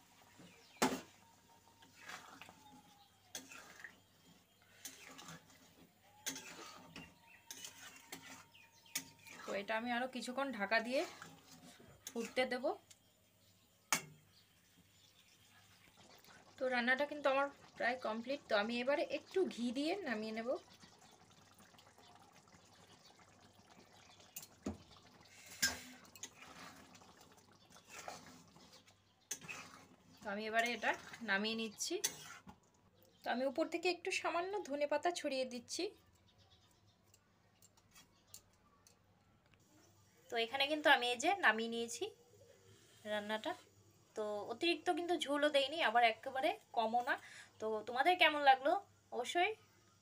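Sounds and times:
curry bubbling: 0.0 - 34.7
metal spatula scraping a pan: 1.8 - 12.6, 25.3 - 27.1, 27.7 - 32.6.

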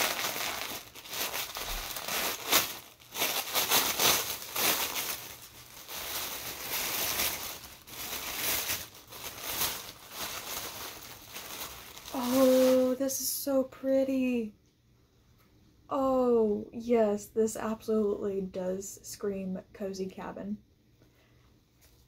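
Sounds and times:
tissue paper crinkling: 0.0 - 13.2.

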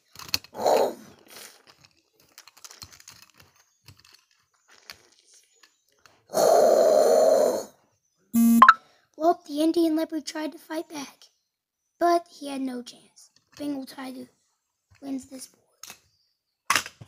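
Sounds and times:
plastic figurines clicking: 0.0 - 6.2
child making growling roars: 0.6 - 1.1, 6.3 - 7.7.

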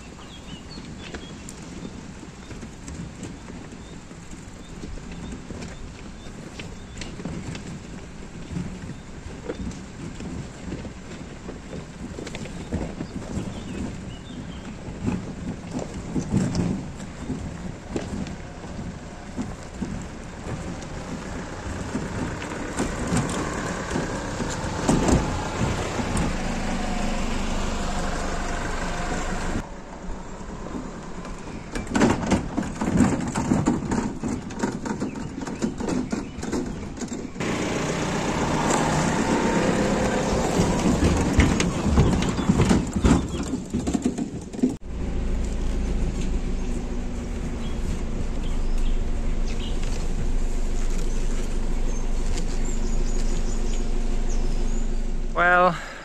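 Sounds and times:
tyres knocking on rough ground: 6.8 - 27.1, 31.8 - 54.2
truck engine running: 11.1 - 35.2, 36.7 - 43.8, 44.8 - 56.0.

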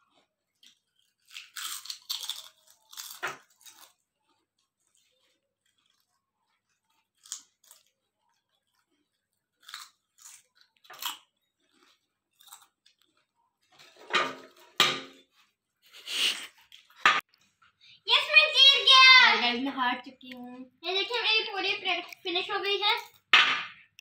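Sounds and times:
children crunching chips: 0.0 - 13.8, 20.3 - 23.3.

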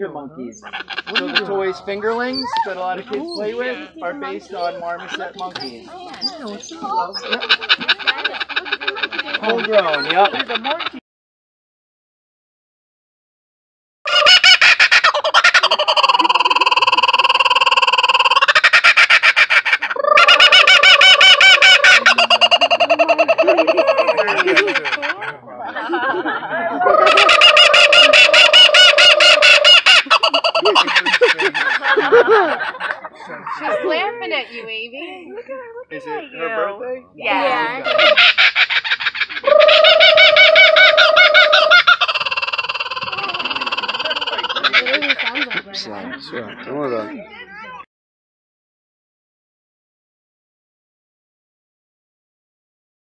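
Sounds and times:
kookaburra cackling: 0.6 - 4.0, 5.0 - 11.0, 14.1 - 25.4, 26.8 - 33.0, 37.4 - 46.7.

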